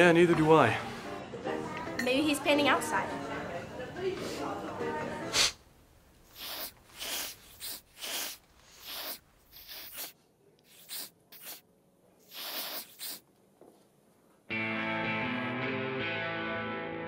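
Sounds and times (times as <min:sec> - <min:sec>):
person sniffing: 0:05.3 - 0:05.6, 0:06.3 - 0:11.6, 0:12.2 - 0:13.2.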